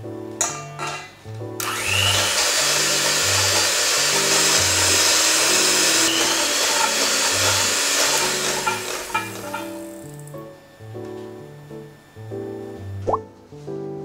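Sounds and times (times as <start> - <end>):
electric hand mixer whisking: 1.6 - 10.5.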